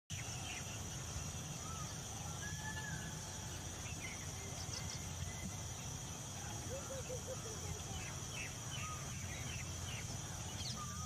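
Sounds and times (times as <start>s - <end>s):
bird chirps: 0.1s - 11.0s
continuous low rumble: 0.1s - 11.0s
high-pitched insect drone: 0.1s - 11.0s.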